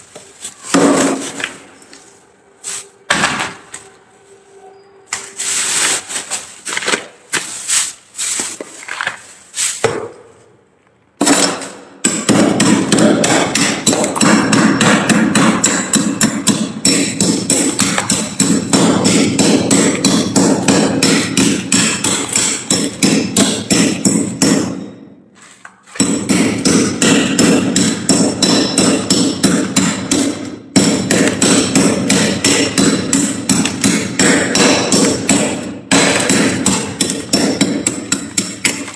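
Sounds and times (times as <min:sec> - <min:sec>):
ice scooped into plastic bag: 0:05.1 - 0:09.8.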